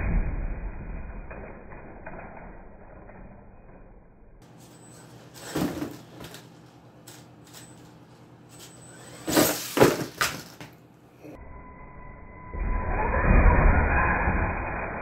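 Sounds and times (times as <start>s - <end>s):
faint high electric whine: 4.0s - 15.0s.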